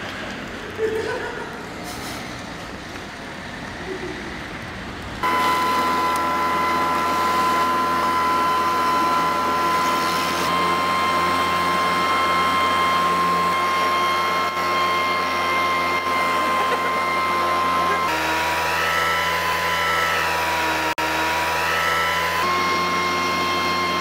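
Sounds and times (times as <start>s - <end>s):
faint street noise: 0.0s - 6.0s
toy electric motor whining: 5.2s - 24.0s.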